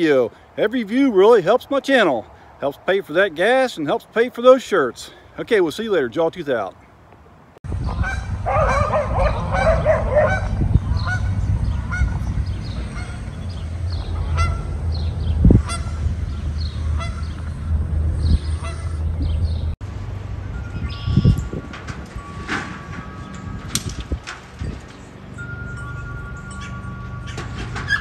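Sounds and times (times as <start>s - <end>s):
steady low rumble: 7.7s - 26.6s
goose honking: 8.0s - 12.2s, 12.9s - 13.4s, 14.2s - 14.8s, 15.6s - 16.1s, 16.8s - 17.4s, 18.6s - 19.1s
small birds chirping: 9.0s - 19.8s, 20.7s - 21.4s.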